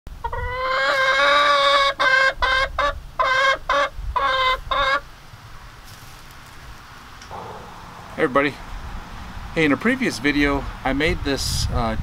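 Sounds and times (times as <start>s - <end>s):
hen cackling: 0.2s - 5.1s, 7.3s - 8.2s.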